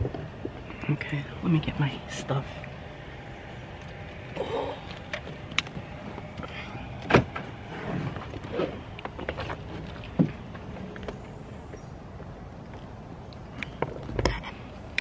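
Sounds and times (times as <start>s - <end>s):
car door shutting: 7.0s - 8.8s.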